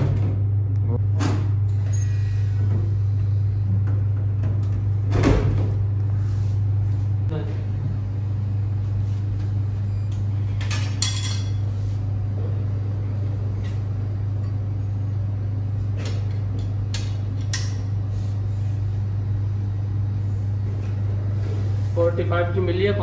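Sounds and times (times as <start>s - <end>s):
low machine hum: 0.0s - 23.0s.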